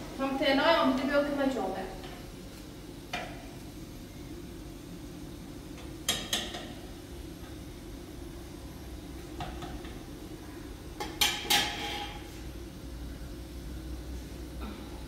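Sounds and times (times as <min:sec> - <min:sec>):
low background noise: 0:00.0 - 0:11.7
dishes and pots clattering: 0:11.0 - 0:12.2.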